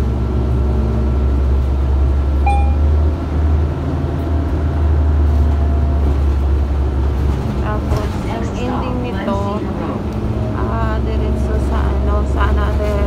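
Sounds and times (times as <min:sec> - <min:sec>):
bus engine and road rumble: 0:00.0 - 0:13.0
short high-pitched tone: 0:02.5 - 0:02.9.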